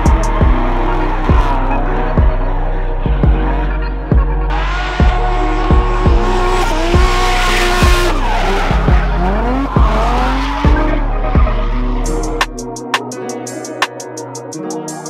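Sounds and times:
music with heavy drum beat: 0.0s - 1.6s, 3.1s - 3.5s, 4.1s - 15.0s
car engine revving: 0.0s - 13.0s
tyres screeching: 3.5s - 12.7s.

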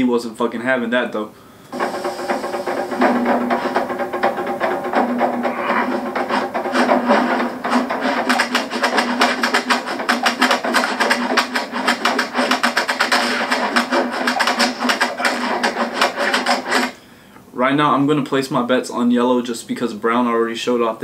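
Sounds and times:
background music: 1.7s - 16.9s.

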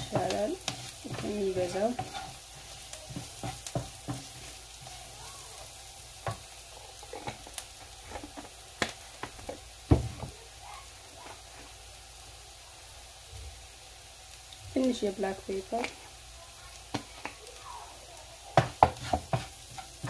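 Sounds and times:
wooden spatula scraping pan: 0.0s - 5.1s, 7.0s - 8.6s, 18.6s - 20.0s
onion sizzling in frying pan: 0.0s - 20.0s.

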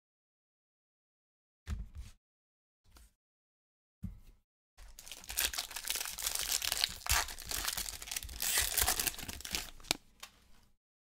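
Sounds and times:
foil wrapper crinkling: 4.8s - 10.0s.

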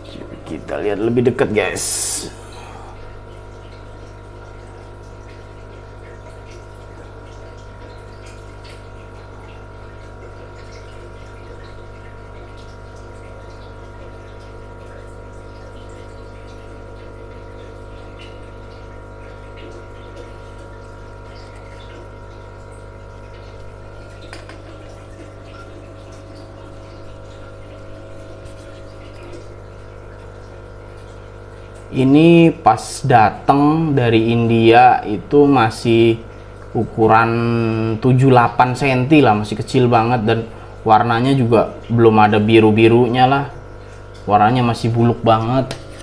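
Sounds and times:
electrical hum: 0.0s - 46.0s.

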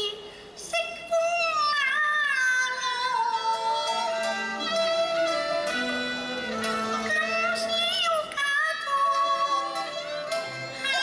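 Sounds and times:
woman singing opera: 0.0s - 5.7s, 6.4s - 11.0s
instrumental accompaniment: 2.7s - 11.0s.

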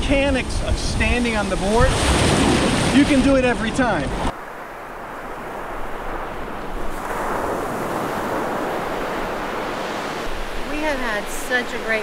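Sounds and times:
ocean surf washing ashore: 0.0s - 12.0s.

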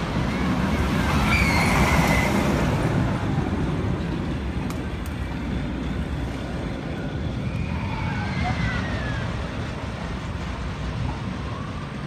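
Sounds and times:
roller coaster rumbling on track: 0.0s - 12.0s.

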